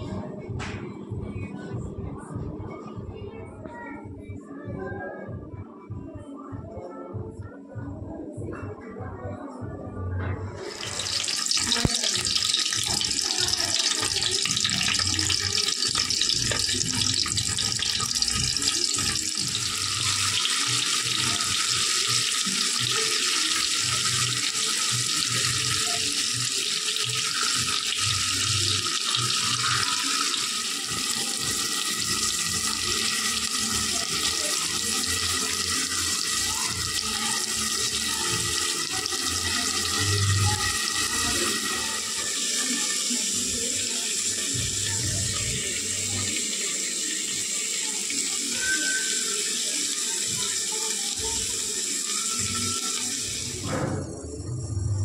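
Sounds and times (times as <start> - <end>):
eggs sizzling in hot oil: 10.6 - 45.0.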